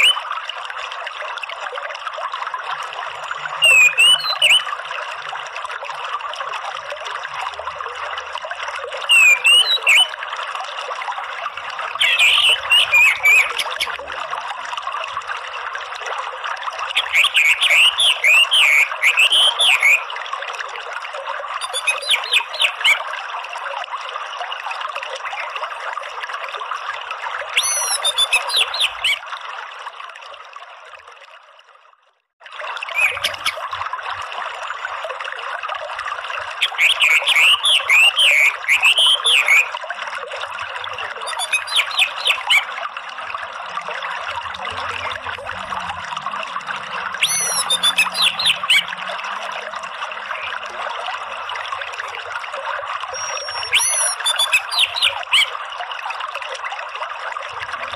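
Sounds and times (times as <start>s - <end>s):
running stream water: 0.0s - 57.9s
thrush chattering calls: 12.0s - 14.0s, 17.0s - 20.0s, 27.6s - 29.2s, 33.0s - 33.6s, 36.6s - 39.6s, 41.2s - 42.7s, 47.2s - 48.9s, 53.2s - 55.5s.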